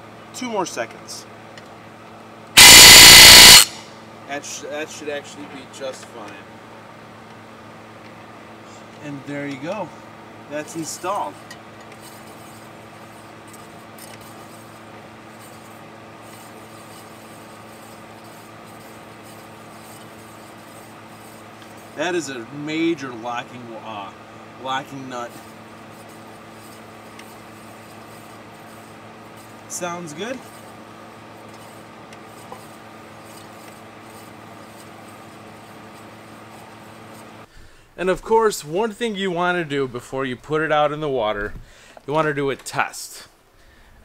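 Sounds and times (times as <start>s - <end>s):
low mechanical hum: 0.0s - 44.0s
steady machine hum: 1.4s - 5.8s.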